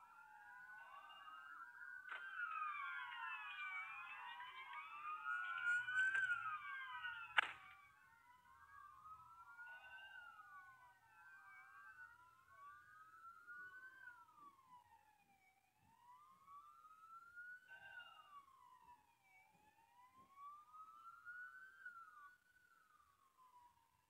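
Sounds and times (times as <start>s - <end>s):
emergency vehicle siren wailing: 0.0s - 24.0s.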